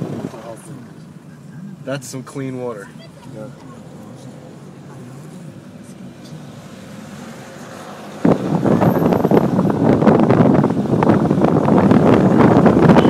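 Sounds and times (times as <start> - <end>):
car cabin rumble: 0.0 - 13.0
wind buffeting microphone: 5.5 - 13.0.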